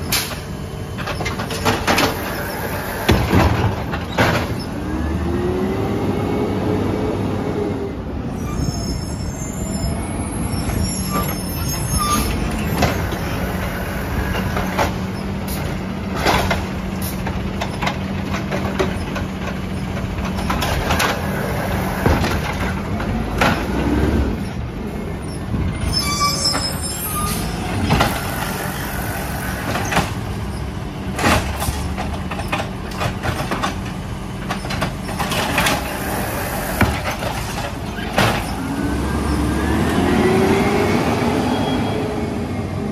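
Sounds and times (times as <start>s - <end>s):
trash carts clanking and banging: 0.0s - 5.5s, 10.0s - 41.2s
garbage truck engine running: 10.5s - 25.8s.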